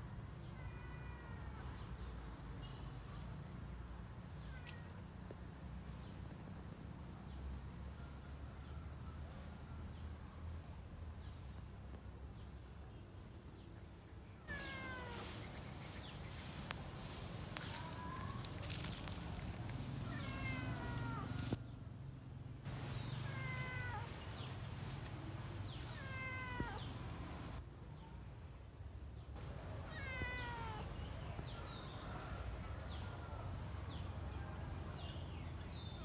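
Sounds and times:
cat meowing: 20.0s - 21.4s, 23.3s - 24.2s, 26.0s - 26.9s, 29.9s - 30.8s.

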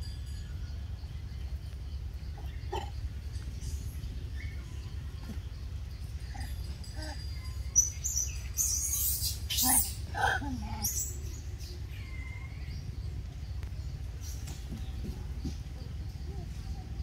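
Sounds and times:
steady low rumble: 0.0s - 17.0s
monkeys squealing and chirping: 2.3s - 5.4s, 6.0s - 12.3s.

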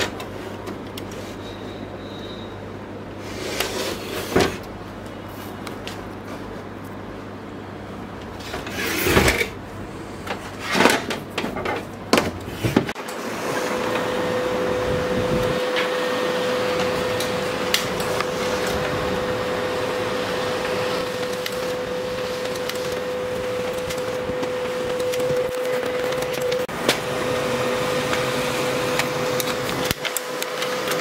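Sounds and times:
laser printer whirring: 12.9s - 31.0s.

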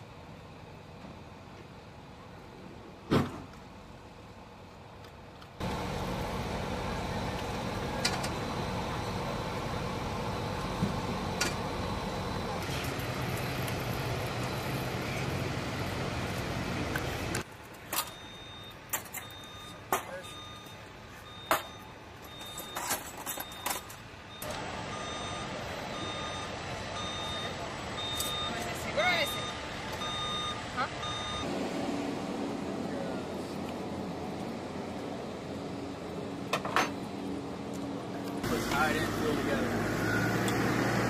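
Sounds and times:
machinery humming and rushing: 5.6s - 17.5s, 24.3s - 41.0s
short electronic beeps: 18.0s - 31.5s.

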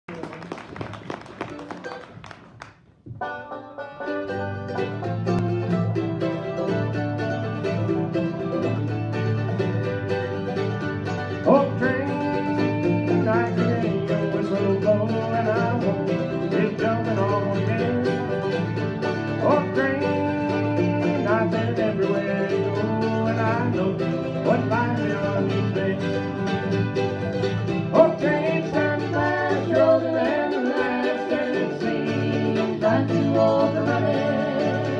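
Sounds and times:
bluegrass band playing: 0.1s - 34.9s
banjo picking: 3.0s - 34.9s
person singing: 11.4s - 18.5s, 19.4s - 26.8s, 27.9s - 34.9s.

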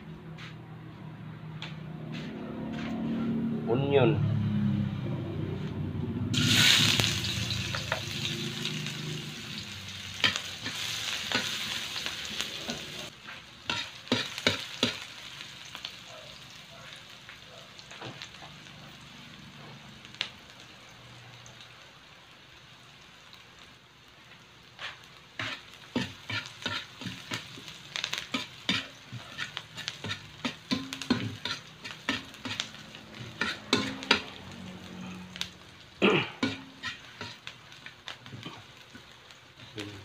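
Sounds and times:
onion sizzling in oil: 6.2s - 40.0s
metal spatula scraping wok: 6.3s - 15.0s, 24.8s - 35.0s, 36.4s - 37.5s.

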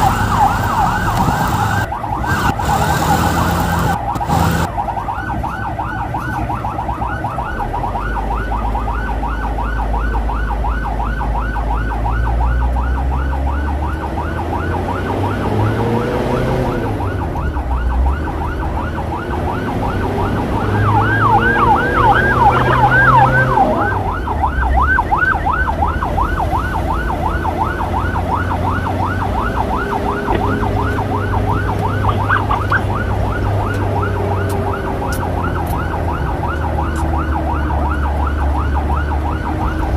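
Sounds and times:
motorcycle engine revving: 0.0s - 4.7s, 13.1s - 24.2s, 25.8s - 37.6s
electronic yelp siren: 0.0s - 39.9s.

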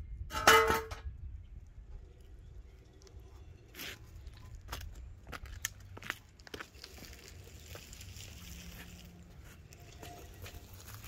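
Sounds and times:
low wind rumble on microphone: 0.0s - 6.1s.

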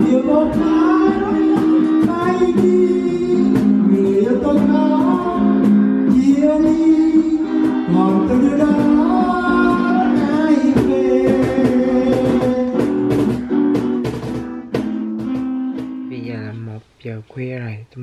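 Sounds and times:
person singing: 0.0s - 13.3s
hand drum beat: 0.0s - 16.7s
acoustic guitar strumming: 0.0s - 16.9s.

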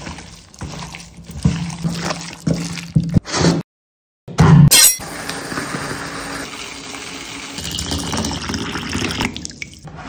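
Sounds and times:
water pouring into bowl: 5.5s - 9.8s.

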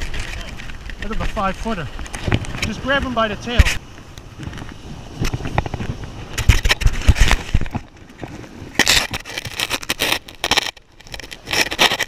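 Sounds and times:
scraping and crackling handling noise: 0.0s - 12.0s.

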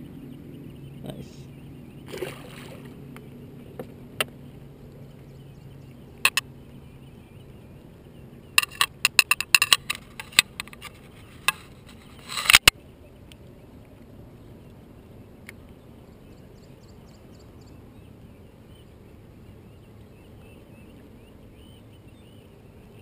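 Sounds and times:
sharp clicks and knocks: 6.2s - 6.4s, 8.6s - 11.7s.

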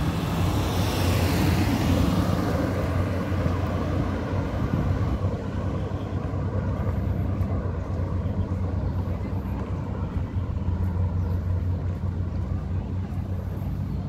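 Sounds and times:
passing vehicle hiss: 0.0s - 7.9s
steady low traffic hum: 0.0s - 14.0s.

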